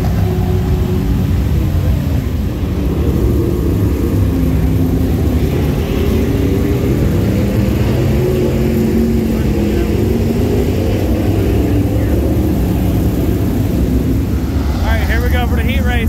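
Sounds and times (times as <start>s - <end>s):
race car engines running: 0.0s - 16.0s.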